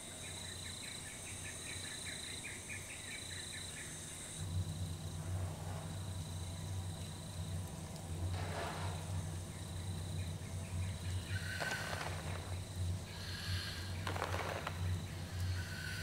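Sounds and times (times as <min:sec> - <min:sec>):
low droning hum: 0:03.7 - 0:16.0
breath-like noises: 0:13.0 - 0:14.0, 0:15.2 - 0:16.0.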